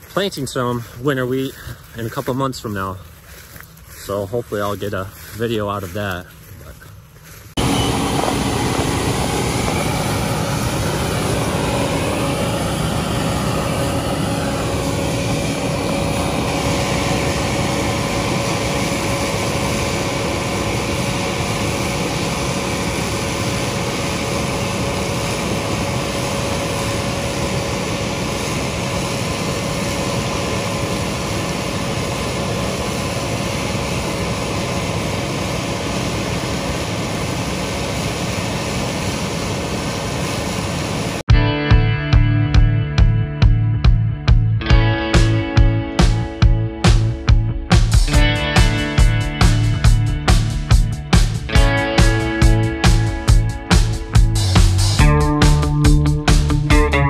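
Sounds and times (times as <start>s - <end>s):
faint wavering whine: 0.0s - 41.2s
engine and machine noise: 0.0s - 41.6s, 42.6s - 57.0s.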